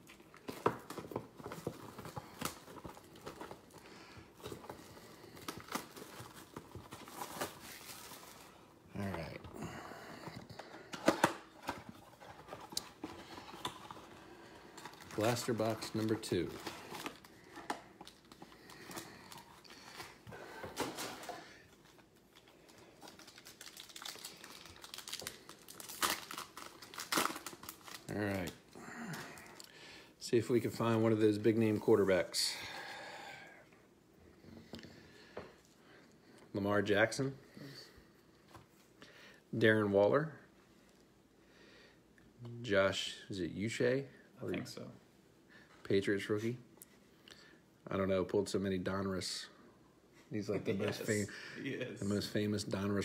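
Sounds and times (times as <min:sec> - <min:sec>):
card packs crinkling and rustling: 0:00.0 - 0:29.8
foil wrapper crinkling and tearing: 0:14.7 - 0:20.2, 0:21.2 - 0:28.6
foil pack ripping: 0:23.1 - 0:28.5.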